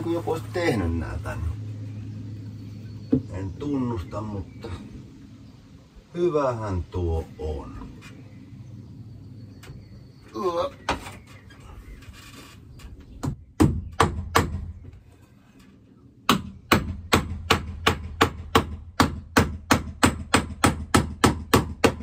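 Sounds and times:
hammer nailing wood: 13.2 - 14.8, 16.3 - 22.0.

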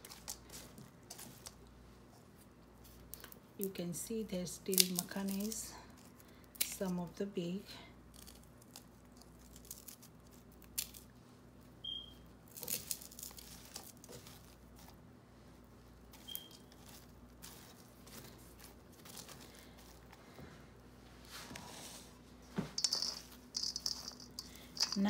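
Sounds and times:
fingers crushing crunchy food: 8.0 - 11.2, 12.5 - 15.0.

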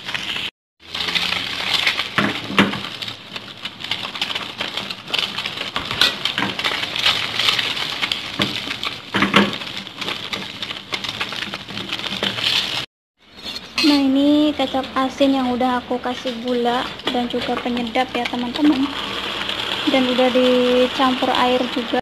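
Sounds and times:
crackling pops: 0.0 - 12.9
tofu sizzling in hot oil: 0.0 - 12.9, 18.4 - 22.0.

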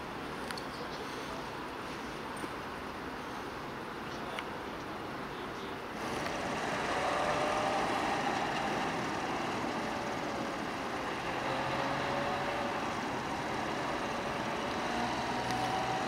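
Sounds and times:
vehicle driving by: 6.0 - 16.0.

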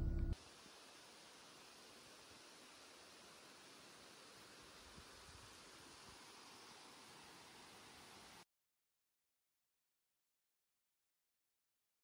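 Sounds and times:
faint steady hiss: 0.0 - 8.4.

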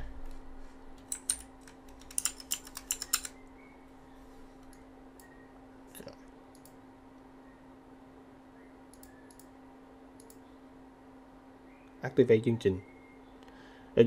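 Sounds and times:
steady low hum: 0.0 - 14.0
keyboard key clicks: 1.0 - 3.3.

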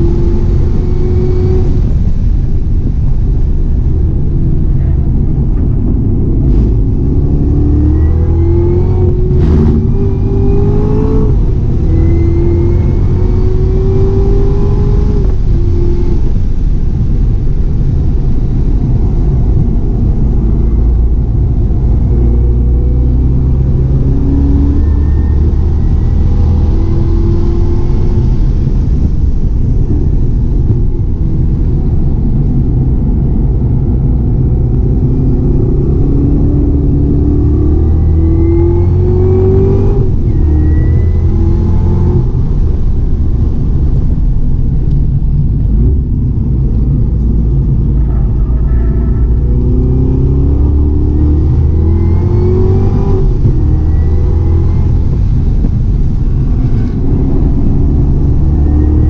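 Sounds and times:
car engine revving hard: 6.4 - 16.2, 34.4 - 42.5, 49.4 - 59.0.

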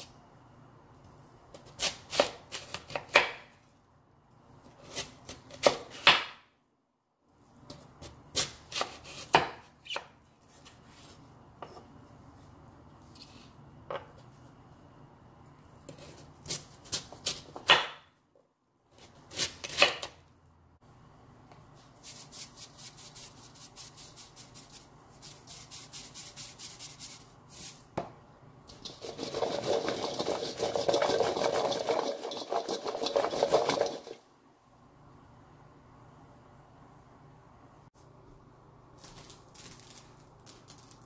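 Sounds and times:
vegetables rattling in metal colander: 28.7 - 34.2.

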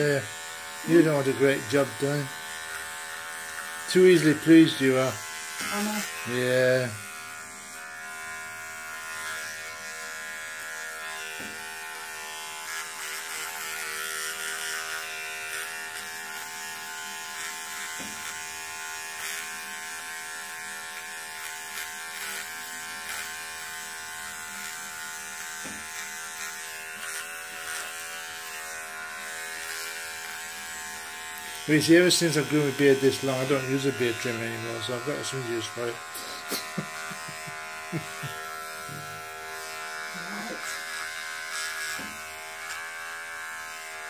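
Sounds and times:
electric trimmer buzzing: 0.0 - 44.0.

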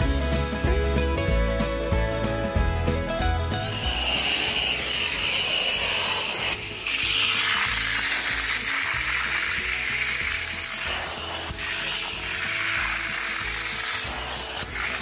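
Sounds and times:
upholstery cleaner spraying and vacuuming: 3.6 - 15.0.

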